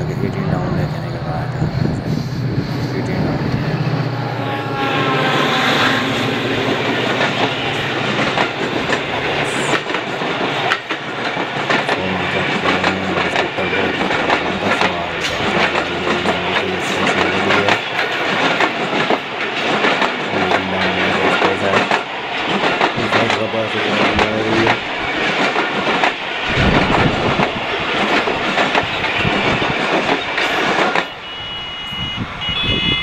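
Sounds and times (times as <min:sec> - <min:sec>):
diesel locomotive passing: 0:00.0 - 0:33.0
train wheels clicking over rail joints: 0:06.3 - 0:31.2.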